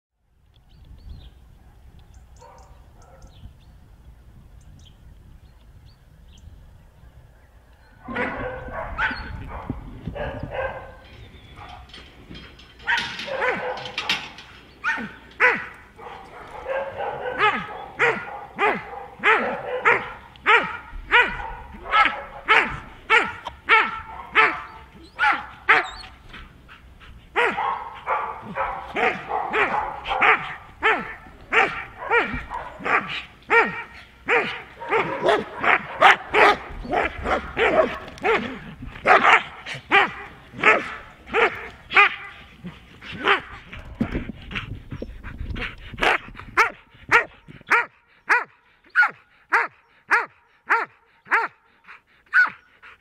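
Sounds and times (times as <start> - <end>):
dog barking: 2.4 - 3.3, 8.0 - 11.0, 12.8 - 26.1, 27.4 - 42.4, 46.0 - 51.6, 52.3 - 52.6.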